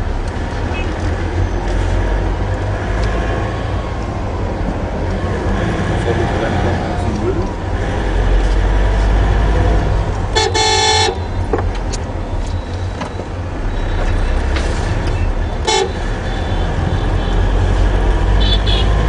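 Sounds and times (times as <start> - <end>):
car engine and road noise: 0.0 - 19.0
car horn honking: 10.3 - 11.5, 15.2 - 17.6, 18.4 - 19.0.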